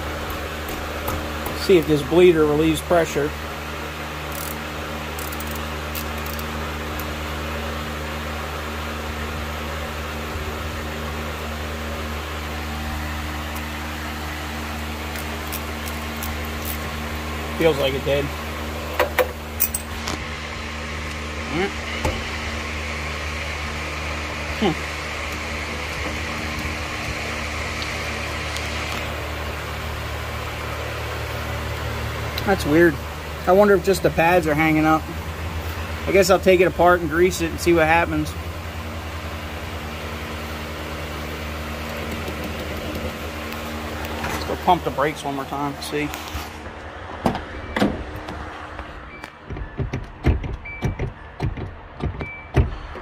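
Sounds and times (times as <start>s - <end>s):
machine hum: 0.0s - 53.0s
ratchet clicking: 4.3s - 7.1s.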